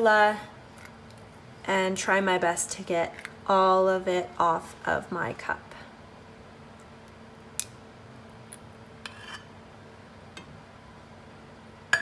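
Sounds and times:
faint steady hum: 0:00.0 - 0:12.0
spatula scraping metal cup: 0:09.0 - 0:09.5.

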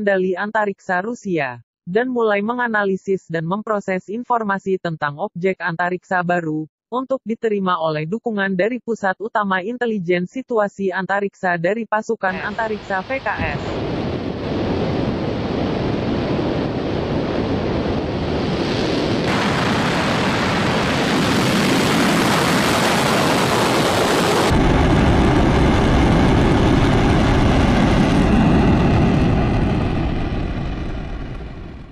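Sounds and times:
rocket engines roaring: 0:12.3 - 0:31.9.

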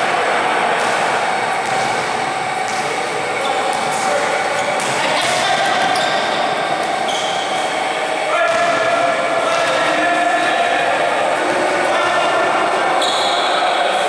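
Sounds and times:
indistinct voices echoing: 0:00.0 - 0:14.0
basketball bouncing: 0:00.8 - 0:07.0
sneaker squeaks: 0:00.8 - 0:08.8, 0:12.9 - 0:14.0.

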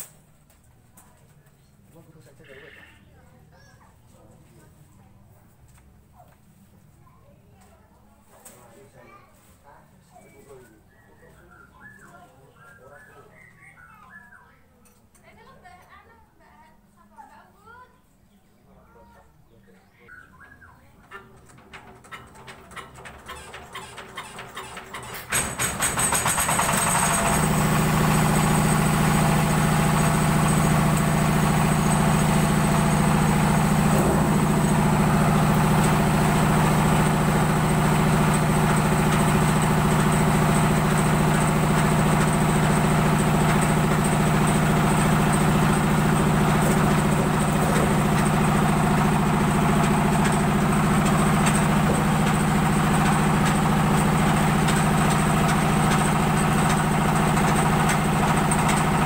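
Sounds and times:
corn sheller mechanical drone: 0:21.1 - 0:59.0.

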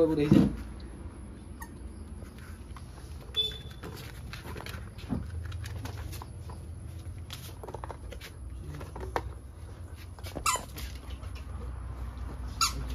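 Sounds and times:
puppy squeak: 0:01.5 - 0:01.8, 0:10.3 - 0:10.8, 0:12.5 - 0:12.9
crinkling paper and plastic: 0:02.8 - 0:09.3.

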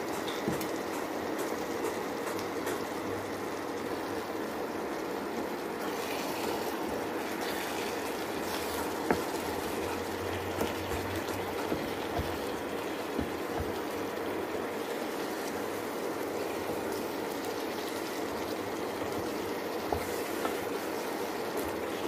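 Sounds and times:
curry bubbling in a pan: 0:00.0 - 0:22.0
wooden spoon stirring: 0:05.8 - 0:22.0.

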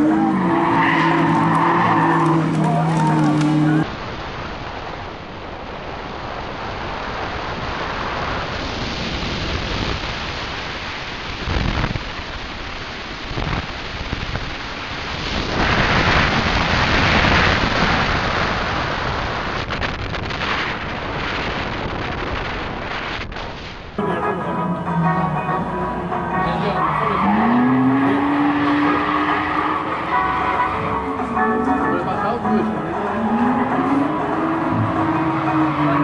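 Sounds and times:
rally car tyres on gravel: 0:00.0 - 0:04.0.

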